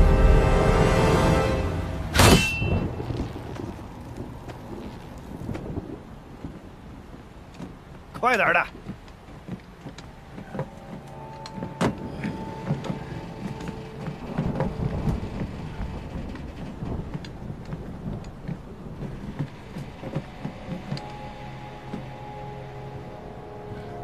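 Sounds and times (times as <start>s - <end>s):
low rumbling ambience: 0.0s - 8.2s, 8.9s - 24.0s
footsteps on steel: 6.4s - 22.5s.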